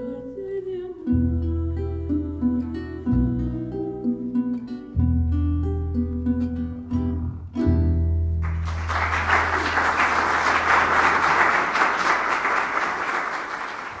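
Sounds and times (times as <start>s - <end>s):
audience applause: 8.4s - 14.0s.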